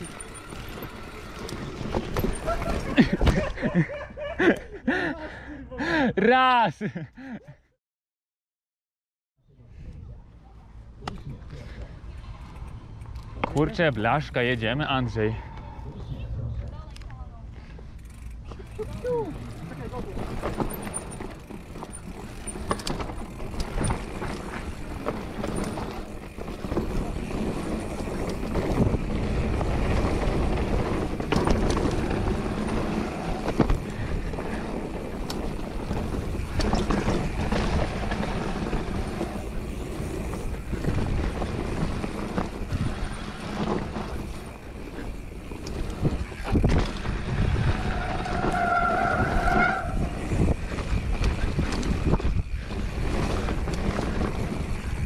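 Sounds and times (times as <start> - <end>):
tyres rumbling over dirt: 0.0 - 3.8, 18.0 - 55.0
bike rattling and knocking: 0.0 - 3.9, 17.8 - 55.0
wind rushing over microphone: 23.0 - 55.0.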